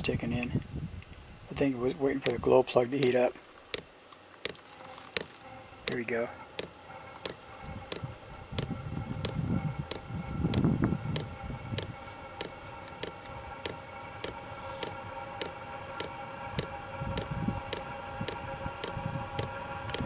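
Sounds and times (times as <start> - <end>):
fuel pump ticking: 2.2 - 4.6, 6.6 - 20.0
blower whine: 4.4 - 20.0.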